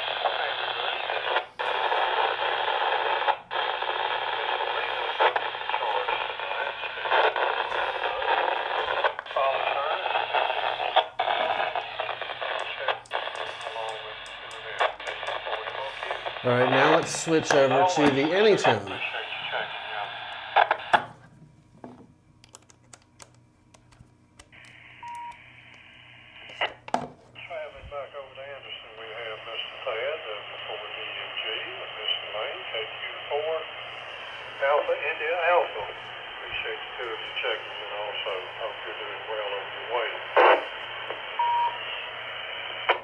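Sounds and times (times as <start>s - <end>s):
faint radio speech: 0.0s - 20.9s, 27.4s - 42.2s
radio static hiss: 0.0s - 21.3s, 24.4s - 43.0s
radio crackles: 0.0s - 43.0s
metallic connector clicks: 22.4s - 24.5s.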